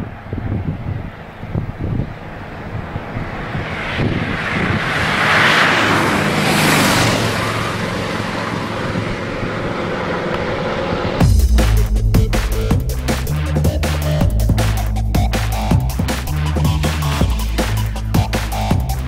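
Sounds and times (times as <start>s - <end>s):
motorcycle engine passing by: 0.0s - 11.4s
wind noise: 0.0s - 18.3s.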